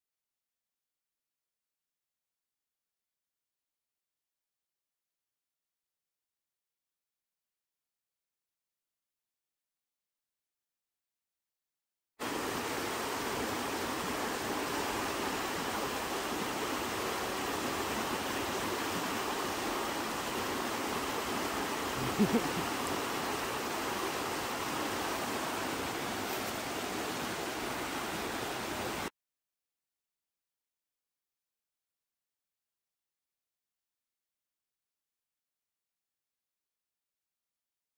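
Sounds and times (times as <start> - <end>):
creek running over rocks: 12.2 - 29.1.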